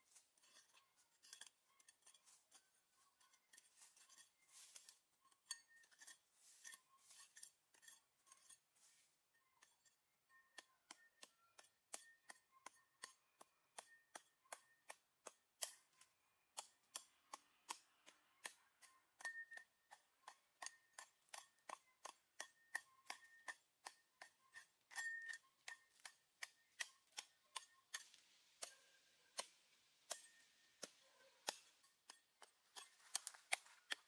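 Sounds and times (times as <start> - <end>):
hatchet scraping through soil: 0.0 - 9.8, 20.3 - 34.0
hatchet striking soil: 0.1 - 9.0, 9.6 - 34.0.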